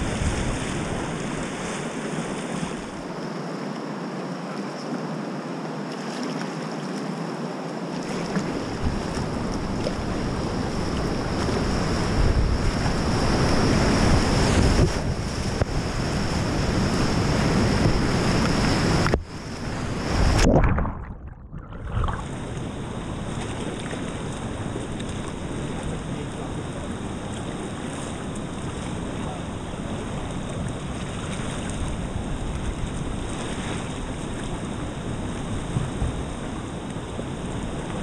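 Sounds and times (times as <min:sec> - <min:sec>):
wind noise: 0:00.0 - 0:03.0, 0:08.5 - 0:26.0
whitewater rushing and splashing: 0:08.0 - 0:26.5.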